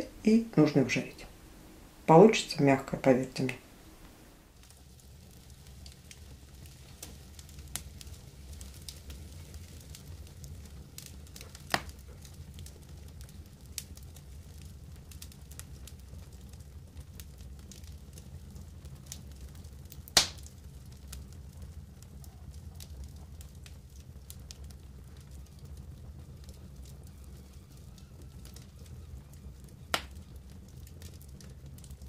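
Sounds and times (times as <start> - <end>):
low steady rumble: 0.0 - 17.5
campfire crackling and popping: 0.0 - 32.0.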